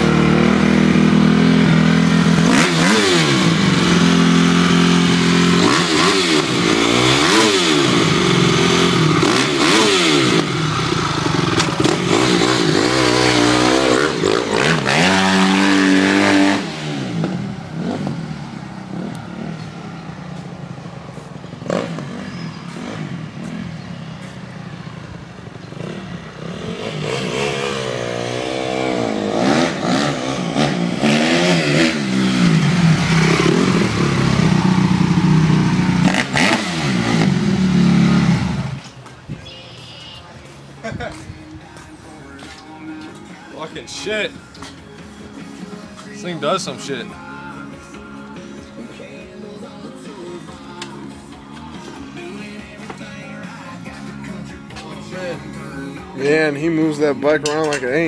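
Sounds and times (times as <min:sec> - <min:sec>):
motocross bike revving: 0:00.0 - 0:20.2, 0:20.8 - 0:38.8.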